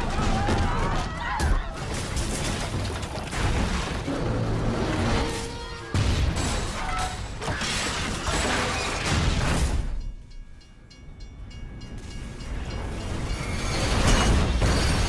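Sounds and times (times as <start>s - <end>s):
train cars grinding metal on metal: 4.0s - 9.0s, 11.8s - 15.0s.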